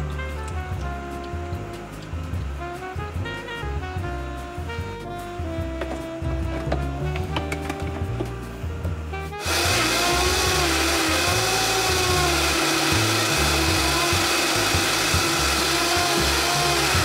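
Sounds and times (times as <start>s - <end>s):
background music: 0.0s - 17.0s
electric motor appliance running: 9.4s - 17.0s.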